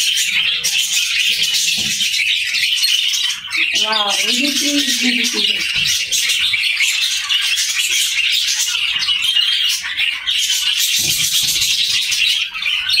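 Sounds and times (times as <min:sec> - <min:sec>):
budgerigars chirping and squawking: 0:00.0 - 0:13.0.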